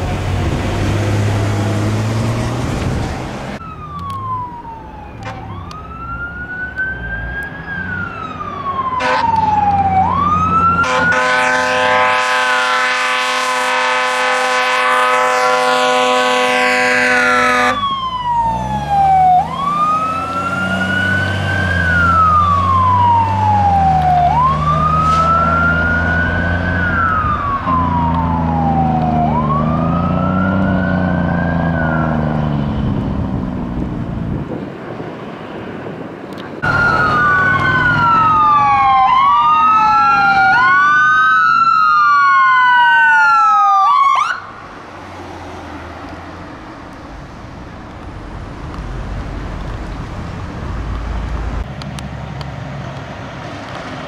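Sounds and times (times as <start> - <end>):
fire engine siren wailing: 0.0 - 33.5, 36.6 - 46.7
diesel engine: 0.0 - 54.0
ambulance siren wailing fast: 3.6 - 32.5, 36.6 - 44.6.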